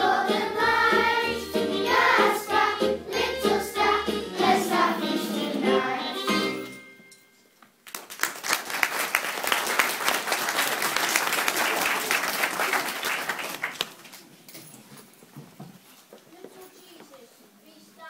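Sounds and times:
audience clapping: 7.8 - 14.3.

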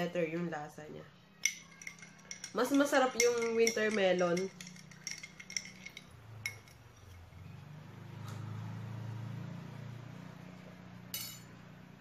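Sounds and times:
spoon clinking against glass mug: 1.4 - 7.4, 11.2 - 11.5
passing vehicle engine: 5.9 - 12.0.

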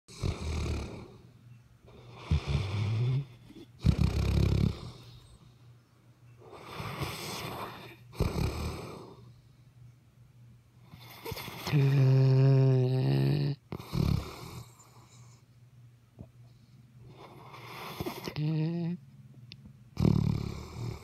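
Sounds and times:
loud snoring: 0.1 - 1.2, 2.0 - 5.2, 6.6 - 9.2, 11.0 - 15.0, 20.0 - 21.0.

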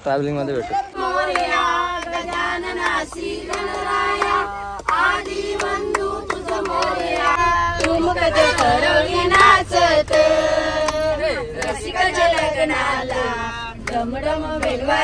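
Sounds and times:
people singing together: 0.5 - 15.0
low rumble: 7.1 - 15.0.

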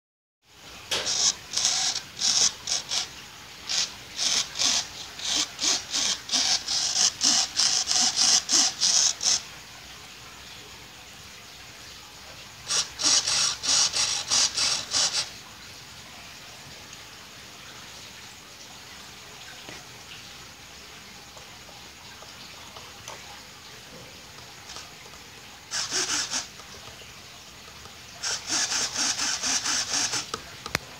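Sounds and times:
rhythmic rasping strokes: 0.9 - 9.4, 12.6 - 15.4, 25.7 - 26.9, 28.2 - 30.4
servos buzzing: 0.9 - 9.4, 12.6 - 15.4, 24.6 - 24.9, 25.7 - 26.6, 28.2 - 30.4.

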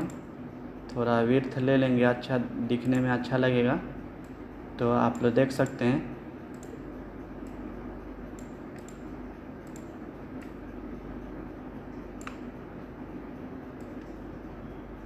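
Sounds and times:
computer mouse clicking: 0.0 - 0.3, 2.8 - 3.1, 6.5 - 6.8, 7.4 - 7.7, 8.3 - 10.7, 12.1 - 12.5, 13.8 - 14.3
room hum and hiss: 0.0 - 15.0.

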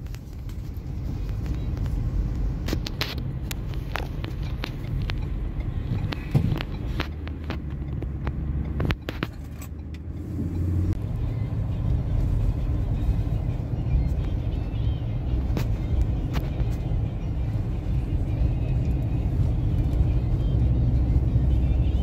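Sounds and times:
engine and road rumble in cabin: 0.0 - 22.0
sharp clicks and knocks: 2.6 - 10.1.

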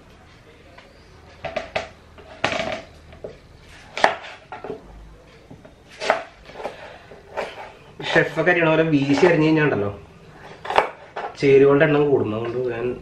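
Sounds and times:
knife slicing onion: 5.9 - 8.4, 10.6 - 11.1.

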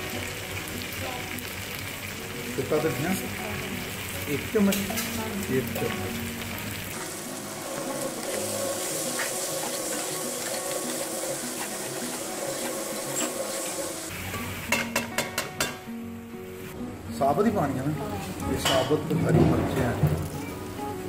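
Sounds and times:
food sizzling in oil: 0.0 - 16.7
metal spoon scraping pot: 9.0 - 13.8.

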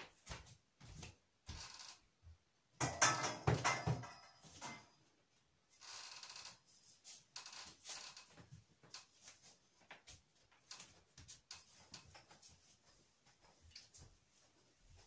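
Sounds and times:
plastic hula hoop clattering: 2.8 - 4.9.

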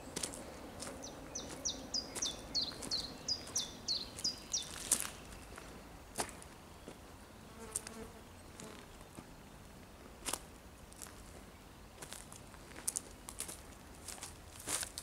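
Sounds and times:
footsteps on gravel and leaves: 0.1 - 7.0, 10.2 - 11.4, 12.0 - 15.0
songbird high falling call: 1.0 - 5.0.

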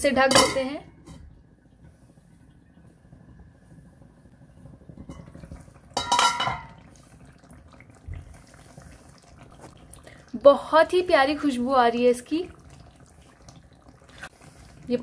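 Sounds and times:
metal pot lid clanking: 0.2 - 1.2, 6.0 - 6.8.

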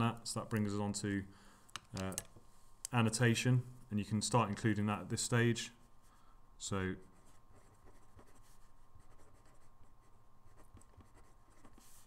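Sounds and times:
pencil scratching on paper: 7.0 - 12.0.

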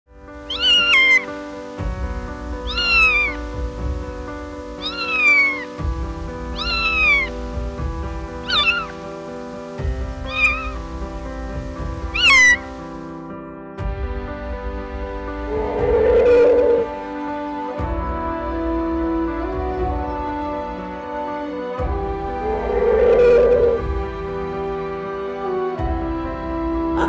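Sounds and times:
background music with sustained chords: 0.1 - 27.0
kitten meowing: 0.5 - 1.2, 2.7 - 3.4, 4.8 - 5.7, 6.5 - 7.3, 8.4 - 8.9, 10.2 - 10.8, 12.1 - 12.6.

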